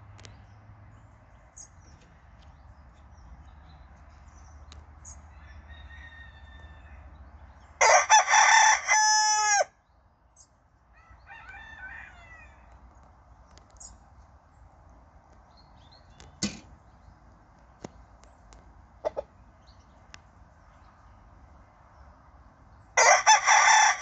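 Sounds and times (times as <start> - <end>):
rooster crowing: 5.3 - 7.2, 7.8 - 9.8, 10.9 - 12.7, 23.0 - 24.0
faint clucking: 19.0 - 19.4.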